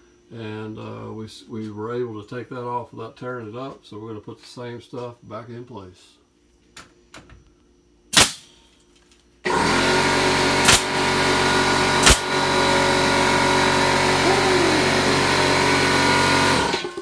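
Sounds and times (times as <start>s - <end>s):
nail gun firing into wood: 8.1s - 8.6s, 10.5s - 11.2s, 12.0s - 12.4s
air compressor motor running: 9.4s - 17.0s.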